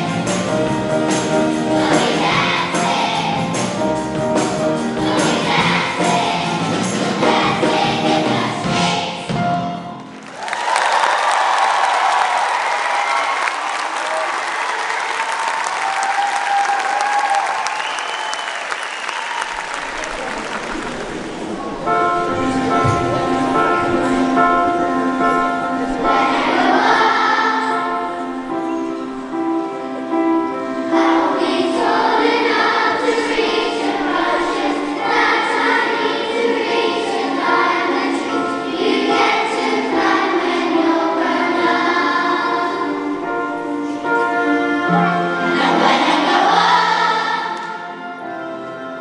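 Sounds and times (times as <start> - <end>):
children's choir singing: 0.0 - 10.1, 19.6 - 49.0
orchestra playing: 19.5 - 49.0.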